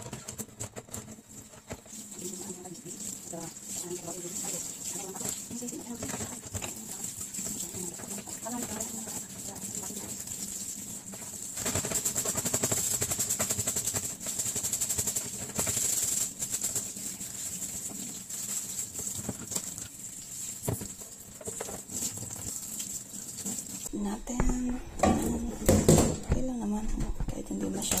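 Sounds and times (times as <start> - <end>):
tap water splashing on filter: 1.6 - 15.9, 20.6 - 23.9
filter knocking: 24.2 - 28.0.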